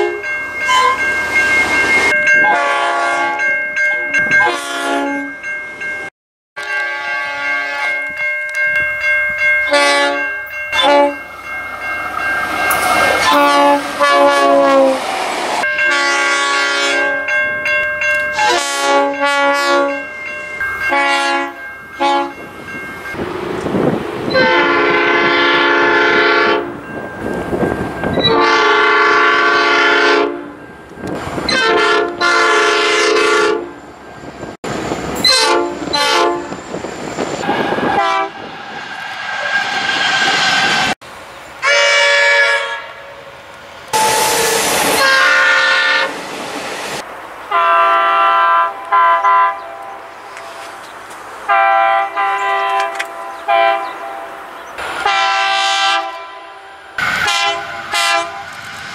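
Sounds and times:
locomotive horn blasts: 0:00.0 - 0:01.0, 0:02.4 - 0:03.5, 0:04.4 - 0:05.3, 0:06.6 - 0:08.0, 0:09.7 - 0:11.3, 0:12.5 - 0:15.1, 0:15.8 - 0:17.3, 0:18.3 - 0:20.1, 0:20.8 - 0:22.5, 0:24.3 - 0:26.8, 0:28.2 - 0:30.6, 0:31.5 - 0:33.8, 0:35.2 - 0:36.6, 0:37.4 - 0:38.5, 0:41.6 - 0:43.2, 0:43.9 - 0:46.2, 0:47.5 - 0:50.1, 0:51.5 - 0:54.4, 0:55.0 - 0:58.5
train wheels on rails: 0:07.5 - 0:32.9, 0:33.7 - 0:42.3, 0:43.1 - 0:58.9.

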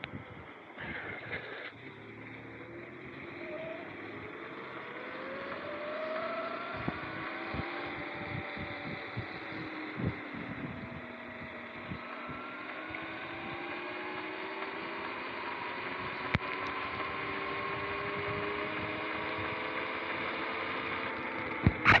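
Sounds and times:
electric motor whining: 0:00.0 - 0:22.0
tyres hissing on wet pavement: 0:00.8 - 0:08.2.

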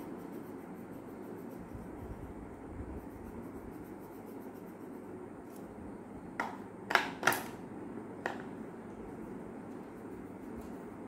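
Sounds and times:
pencil colouring on paper: 0:00.0 - 0:05.2.

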